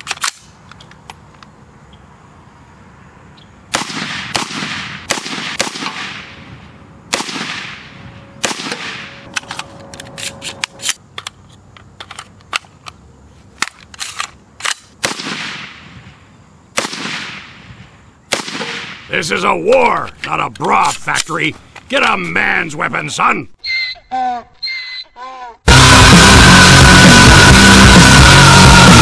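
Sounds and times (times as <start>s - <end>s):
sharp thin gunshots: 3.7s - 6.4s, 7.1s - 9.2s, 15.0s - 15.8s, 16.8s - 17.6s, 18.3s - 19.1s
rifle gunshots with echo: 3.7s - 6.5s, 7.1s - 9.3s, 15.0s - 15.8s, 16.8s - 17.6s, 18.3s - 19.1s.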